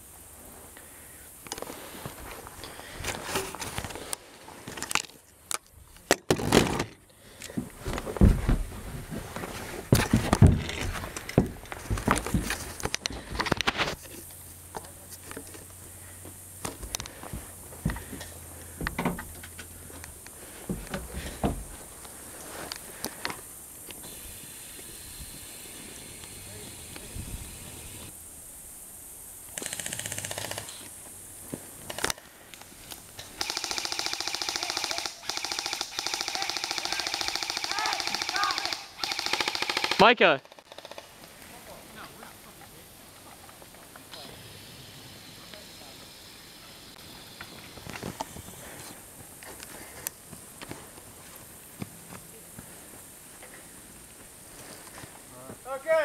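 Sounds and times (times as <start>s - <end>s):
boots knocking on wooden boards: 7.5s - 8.7s, 9.9s - 13.4s, 20.6s - 21.8s
airsoft rifle firing: 33.4s - 41.1s.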